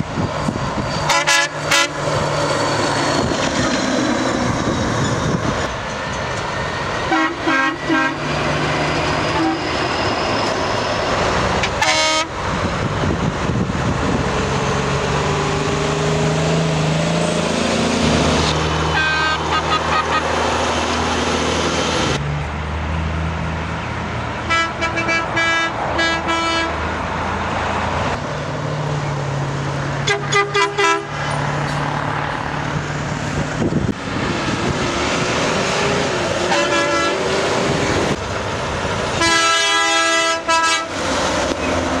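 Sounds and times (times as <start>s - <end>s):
diesel truck engines passing: 0.0s - 42.0s
truck air horn blasts: 1.1s - 2.0s, 7.1s - 8.3s, 9.3s - 9.7s, 11.6s - 12.4s, 18.9s - 19.7s, 24.4s - 26.8s, 30.0s - 31.2s, 36.5s - 37.3s, 39.2s - 41.0s.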